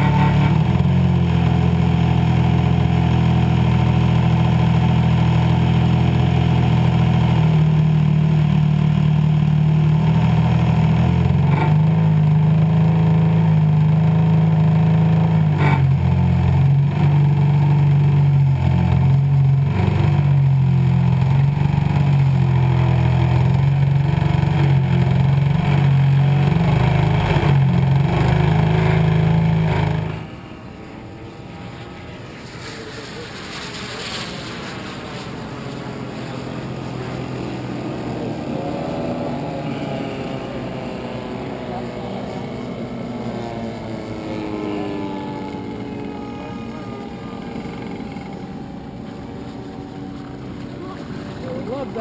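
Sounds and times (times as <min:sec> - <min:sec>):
model plane engine running: 0:00.0 - 0:52.0.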